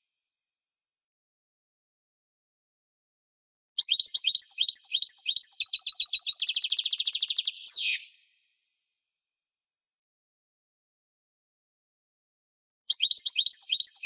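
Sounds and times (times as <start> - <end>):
goldfinch singing: 12.9 - 14.0.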